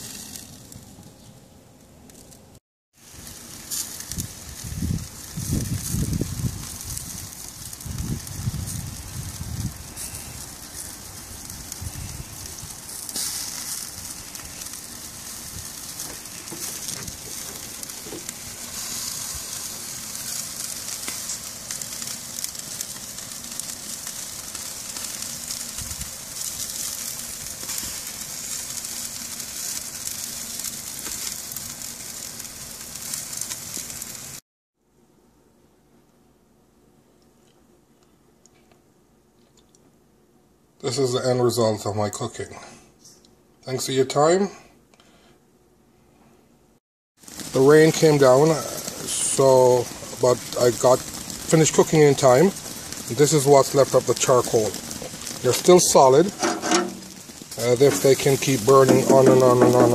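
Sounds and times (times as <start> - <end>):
meat sizzling on charcoal grill: 0.0 - 1.3, 2.9 - 34.4, 47.2 - 59.9.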